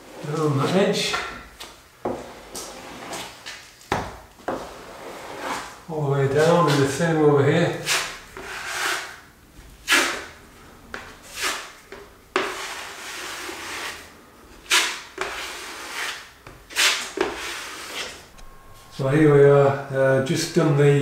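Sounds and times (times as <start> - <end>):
drywall knife scraping filler: 2.1 - 3.5, 4.5 - 5.8, 7.8 - 9.2, 10.9 - 18.2.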